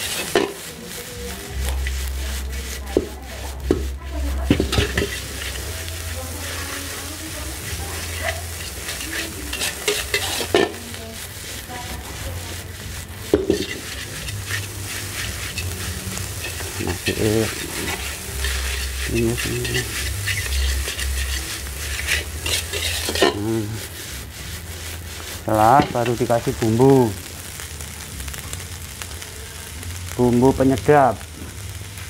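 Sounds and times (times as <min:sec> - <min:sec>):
metal spatula scraping wok: 0:00.0 - 0:30.7
rice sizzling in oil: 0:00.0 - 0:32.0
spatula clanking against wok: 0:04.5 - 0:05.6, 0:08.0 - 0:10.9, 0:13.3 - 0:14.7, 0:16.3 - 0:23.4.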